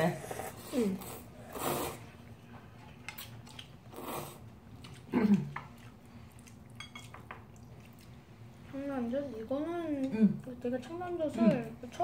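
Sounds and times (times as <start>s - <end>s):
slurping noodles: 0.2s - 2.1s, 3.9s - 4.4s
chewing: 2.7s - 8.2s.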